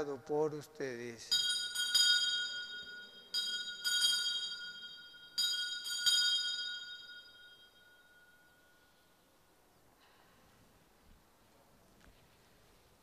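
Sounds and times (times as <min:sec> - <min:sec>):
altar bells ringing: 0:01.2 - 0:09.3.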